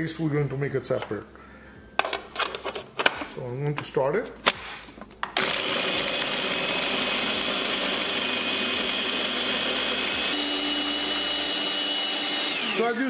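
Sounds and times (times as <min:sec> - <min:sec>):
electric food chopper grinding: 0:05.4 - 0:13.0.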